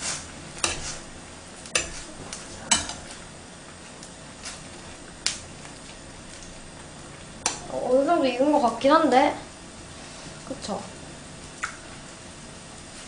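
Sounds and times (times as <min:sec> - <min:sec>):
water boiling in pot: 0:00.0 - 0:13.0
metal tongs clinking on pan: 0:02.7 - 0:03.0.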